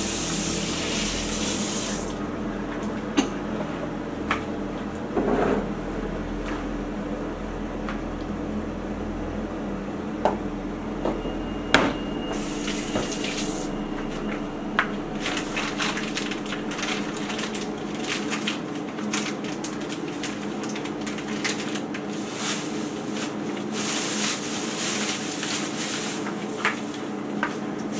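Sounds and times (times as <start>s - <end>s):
tap water running into sink: 0.0s - 2.2s.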